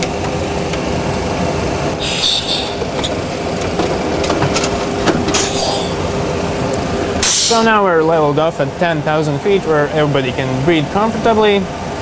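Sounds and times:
simulated engine and airflow noise: 0.0 - 12.0
breathing through oxygen mask: 2.0 - 2.8.

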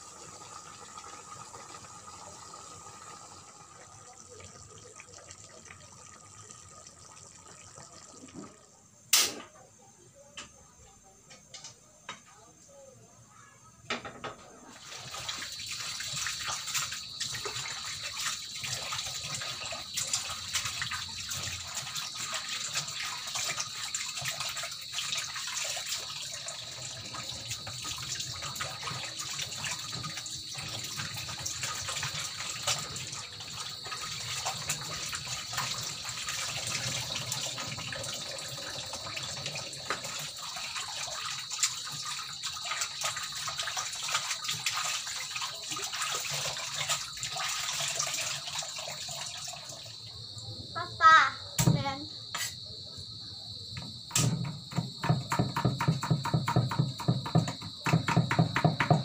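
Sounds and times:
tap water running into bowl: 0.0 - 8.8, 13.9 - 50.1, 53.8 - 59.0.

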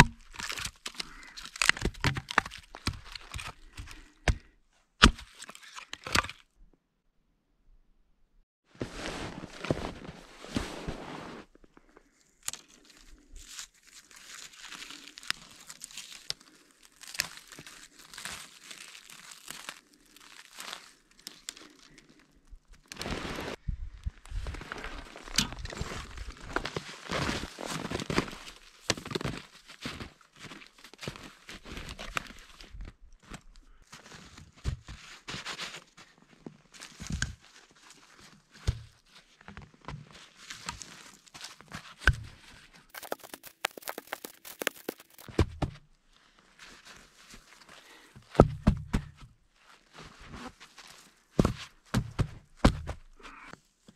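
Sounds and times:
logs being handled: 0.0 - 6.4, 36.4 - 53.9
footsteps crunching in snow: 8.7 - 11.7, 22.9 - 23.6, 24.4 - 32.1, 42.9 - 45.3.

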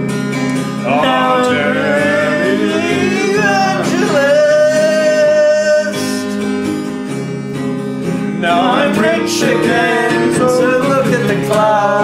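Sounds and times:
strummed acoustic guitar: 0.0 - 12.0
person singing a long note: 0.9 - 6.1.

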